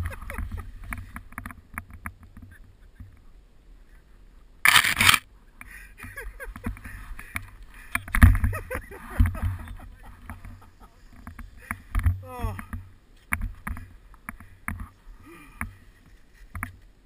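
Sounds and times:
camera handling rumble: 4.7s - 5.3s.

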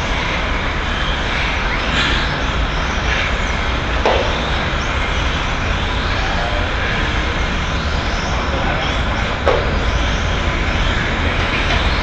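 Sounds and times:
road traffic: 0.0s - 12.0s.

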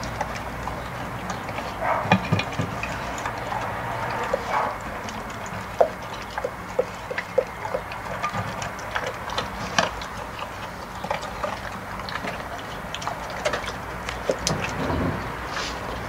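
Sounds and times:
dog eating from metal bowl: 0.0s - 16.0s.

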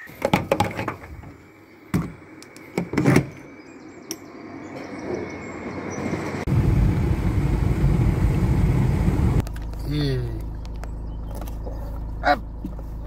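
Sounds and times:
car rumbling on road: 4.3s - 13.0s.

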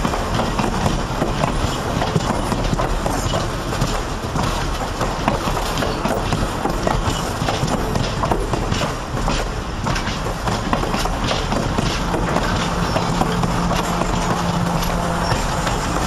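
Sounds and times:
train wheels clacking over rail joints: 0.0s - 16.0s.

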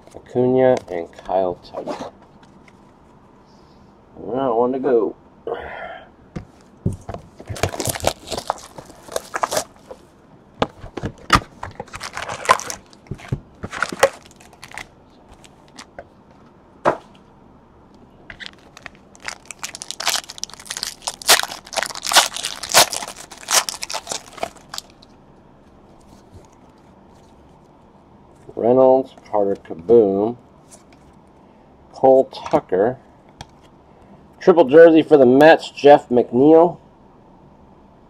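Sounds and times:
cardboard and wrappers crinkling: 7.4s - 10.0s, 10.8s - 15.9s, 18.4s - 25.0s.

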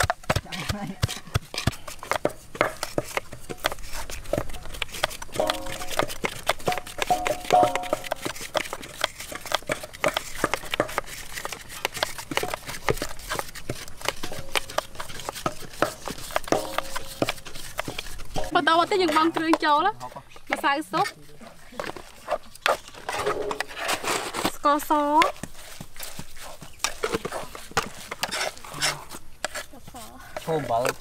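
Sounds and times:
knife chopping on wooden board: 0.0s - 13.4s, 14.0s - 18.1s.

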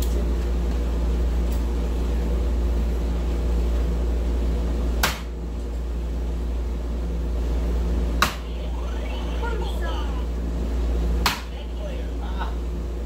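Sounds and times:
steady low hum: 0.0s - 13.0s
dart striking dartboard: 5.0s - 5.3s, 8.2s - 8.4s.

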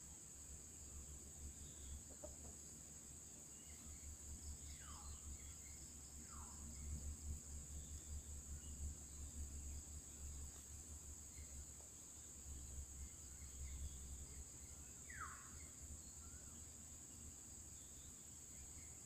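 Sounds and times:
insect drone: 0.0s - 19.0s.

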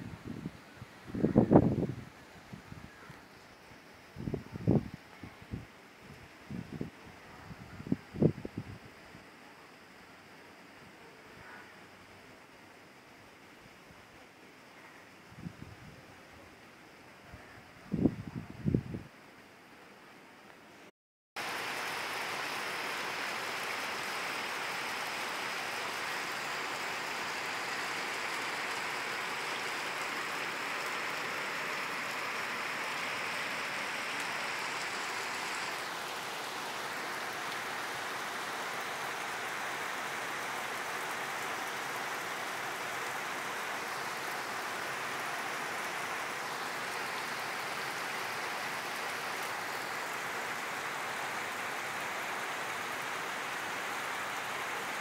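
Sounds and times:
heavy rain on trees and roof: 0.0s - 55.0s.

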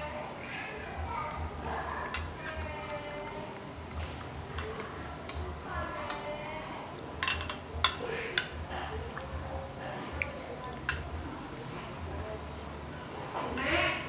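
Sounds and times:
metal ladle clinking ceramic bowl: 7.2s - 8.6s.

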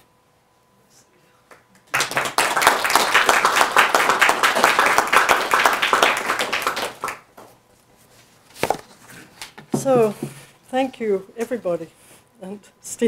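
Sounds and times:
audience applauding: 1.8s - 7.5s.

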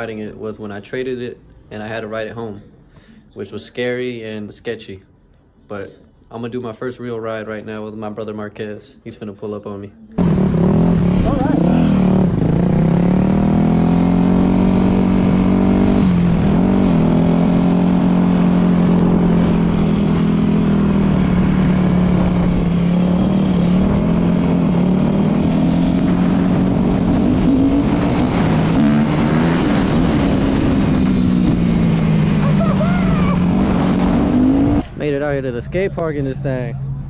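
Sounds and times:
dirt bike engine revving: 10.2s - 35.2s.

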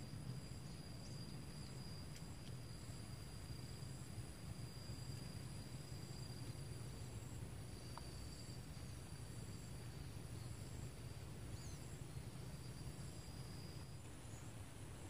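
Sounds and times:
crickets buzzing: 0.0s - 15.0s
low steady rumble: 0.0s - 15.0s
bird chirp: 11.5s - 12.3s.

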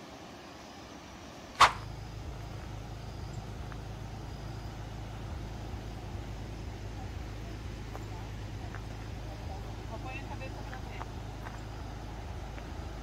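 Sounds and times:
low vehicle engine rumble: 0.0s - 13.0s
sharp click: 1.6s - 1.9s.

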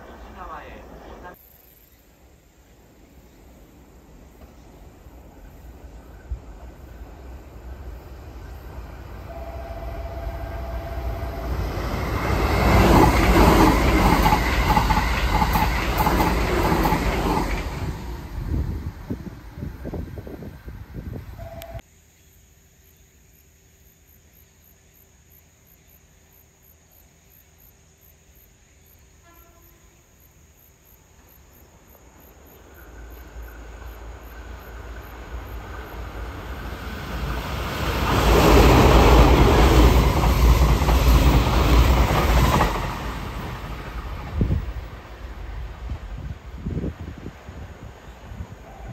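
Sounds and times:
train wheels rushing on rail: 3.5s - 21.7s, 32.4s - 48.9s.

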